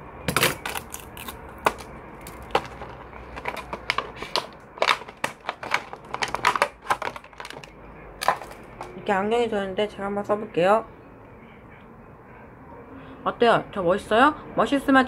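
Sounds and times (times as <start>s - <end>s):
plastic packaging crackling: 0.4s - 9.0s.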